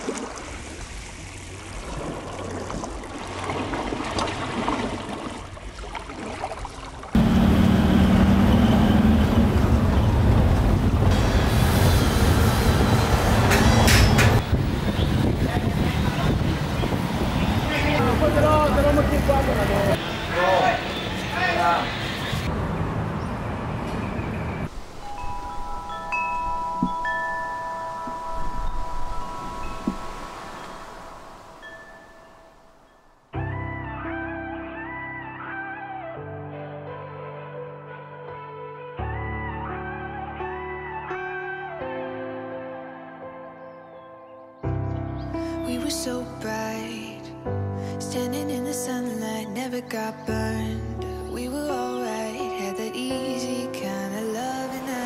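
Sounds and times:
small waves washing onto beach: 0.0 - 7.2
loud steady rumble: 7.2 - 16.7
rushing wind-like noise: 9.4 - 18.0, 24.4 - 32.6
chimes ringing: 24.8 - 33.2.

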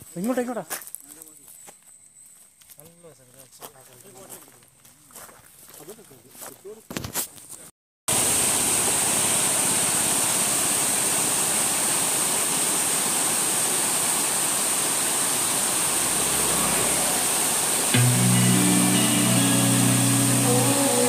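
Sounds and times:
waterfall and stream rushing: 8.1 - 21.0.

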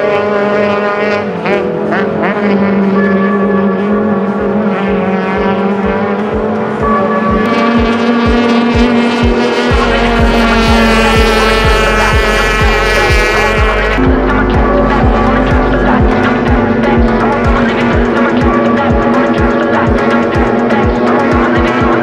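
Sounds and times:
deep bass layer: 0.0 - 22.0
sustained synth chords: 0.0 - 22.0.

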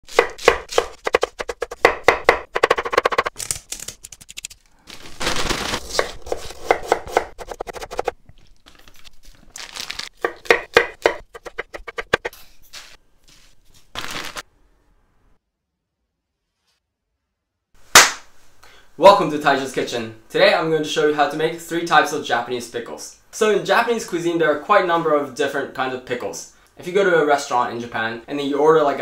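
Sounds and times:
knife chopping cabbage on board: 0.1 - 3.3, 5.9 - 8.1, 10.2 - 12.3
rustling: 3.2 - 14.4.

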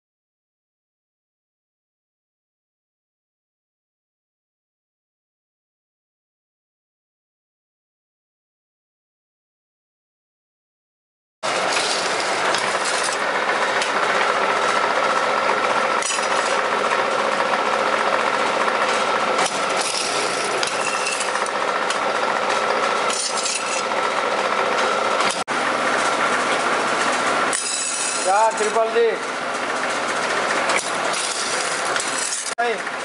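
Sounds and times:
machine motor whirring: 11.4 - 33.0
sharp machine clicks: 15.6 - 25.4, 27.5 - 29.2, 30.0 - 32.8.

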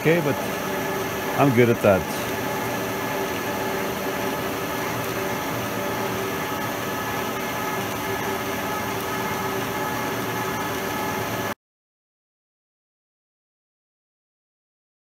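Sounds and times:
milling machine cutting steel: 0.0 - 11.5.

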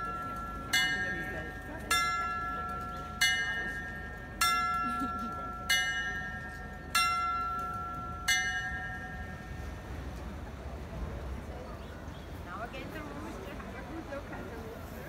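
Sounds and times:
small clock bells striking: 0.0 - 9.9.

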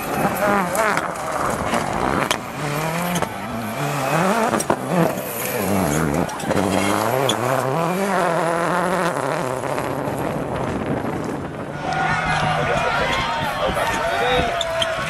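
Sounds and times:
car sliding on gravel: 0.0 - 11.5
rally car engine revving: 0.0 - 12.7.

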